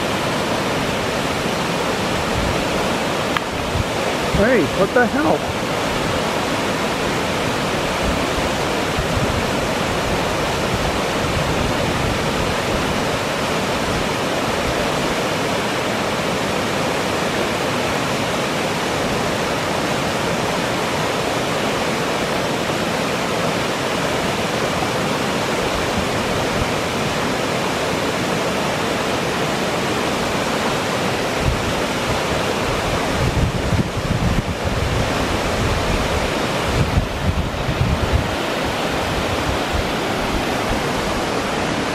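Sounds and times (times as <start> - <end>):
waterfall rushing: 0.0 - 41.9
wind hitting microphone: 2.1 - 4.6, 31.4 - 41.9.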